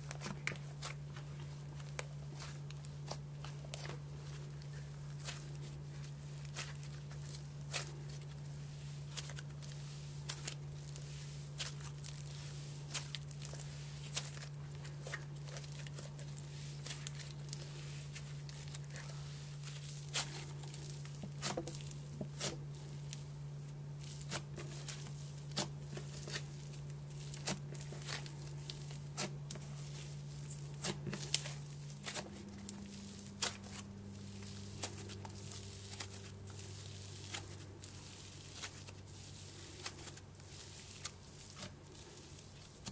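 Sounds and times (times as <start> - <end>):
slime crackling and popping: 9.1 - 23.2, 24.0 - 42.9.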